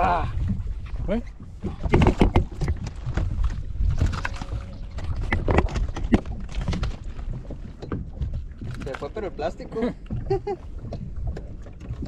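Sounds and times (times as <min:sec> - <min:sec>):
fish flopping on boat deck: 0:00.0 - 0:09.4
steady low rumble: 0:00.0 - 0:12.0.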